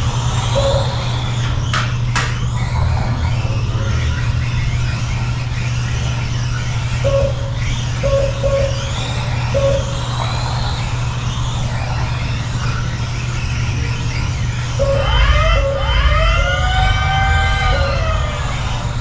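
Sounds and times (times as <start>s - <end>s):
electric motors whining: 0.0s - 19.0s
low hum: 0.0s - 19.0s
short beeps: 7.1s - 8.8s.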